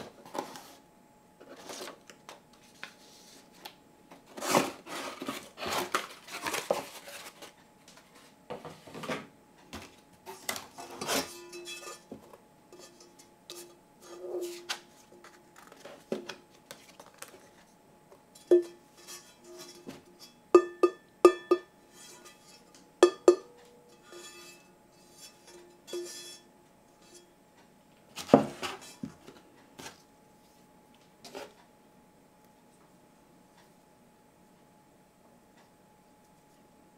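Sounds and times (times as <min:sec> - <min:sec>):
cardboard packaging rustling: 0:04.3 - 0:08.3, 0:14.6 - 0:17.7
knocks on metal pan ringing: 0:20.6 - 0:21.7, 0:23.0 - 0:23.5.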